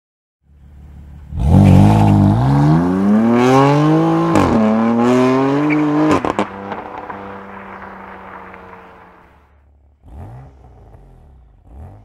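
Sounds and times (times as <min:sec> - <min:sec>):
car engine accelerating hard: 0:01.2 - 0:12.0
exhaust pops and cracks: 0:05.7 - 0:09.4.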